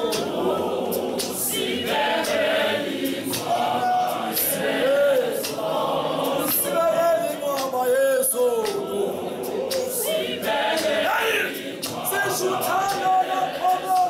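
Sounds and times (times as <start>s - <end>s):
choir singing a cappella: 0.0s - 14.0s
sharp beats: 0.0s - 14.0s
man's voice leading loudly: 11.1s - 14.0s.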